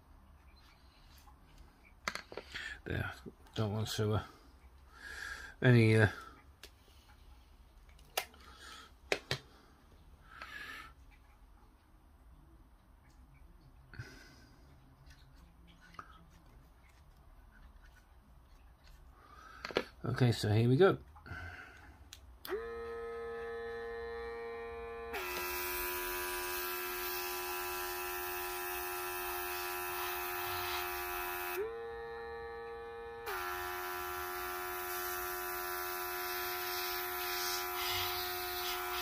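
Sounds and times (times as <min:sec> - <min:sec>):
airbrush compressor humming: 0:22.5 - 0:39.0
airbrush air hiss: 0:29.5 - 0:31.6, 0:36.5 - 0:39.0.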